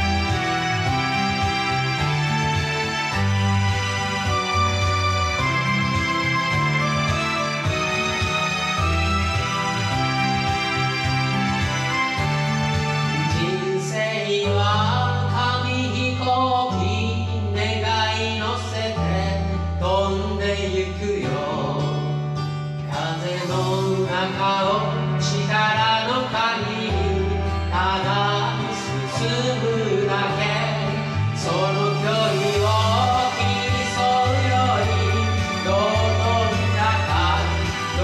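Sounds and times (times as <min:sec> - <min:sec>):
karaoke backing track: 0:00.0 - 0:38.0
man singing into microphone: 0:13.1 - 0:38.0.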